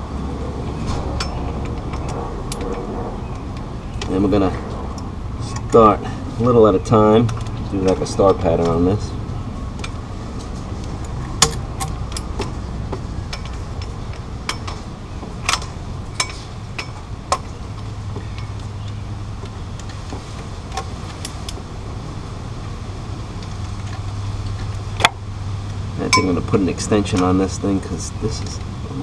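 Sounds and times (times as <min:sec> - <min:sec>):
steady low hum: 0:00.0 - 0:29.0
socket wrench metallic clicks: 0:11.0 - 0:12.5.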